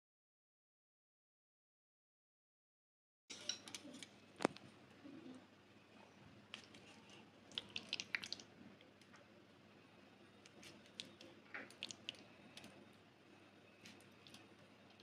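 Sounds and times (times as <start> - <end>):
wet squishing of meat: 6.5 - 8.6, 10.4 - 12.8, 13.8 - 15.0.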